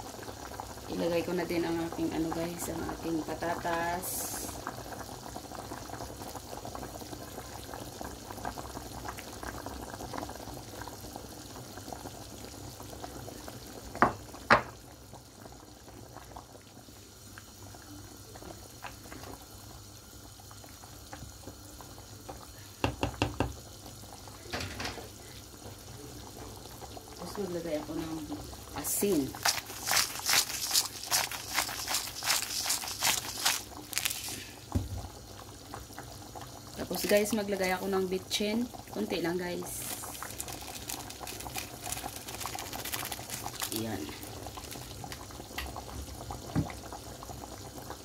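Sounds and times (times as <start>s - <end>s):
stew bubbling: 0.0s - 48.0s.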